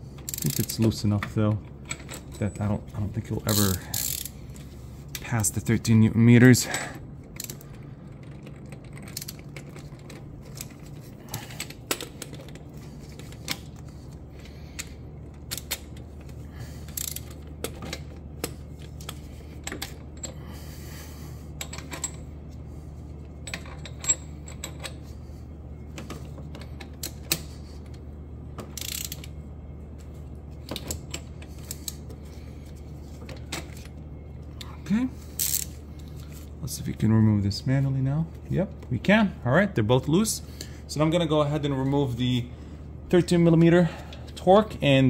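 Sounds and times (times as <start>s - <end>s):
steady low hum: 0.0s - 45.0s
ratchet wrench clicking: 0.2s - 1.0s, 3.5s - 4.4s, 7.4s - 7.7s, 8.3s - 9.4s, 16.9s - 17.4s, 28.8s - 29.3s, 35.4s - 35.7s
metal tools clinking: 1.8s - 4.7s, 23.4s - 25.1s.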